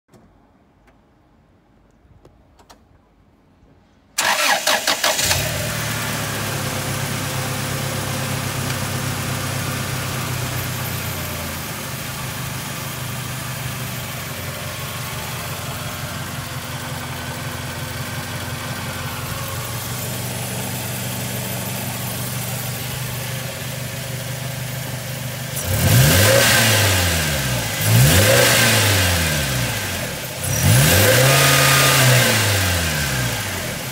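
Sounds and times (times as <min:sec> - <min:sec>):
car engine revving: 0:04.2 - 0:11.0, 0:25.4 - 0:33.9
car engine idling: 0:04.2 - 0:30.8
car engine cranking and starting: 0:04.2 - 0:33.9.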